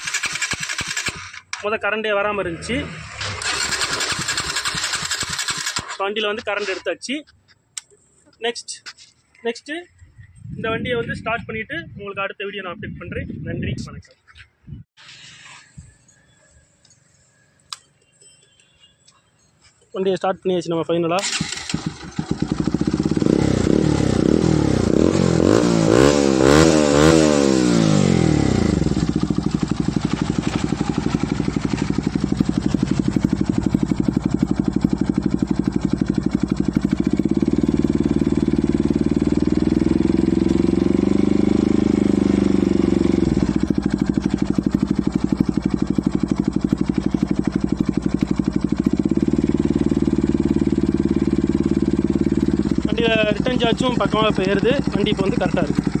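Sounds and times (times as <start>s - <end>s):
motorcycle engine revving and idling: 0.0s - 6.8s, 21.2s - 56.0s.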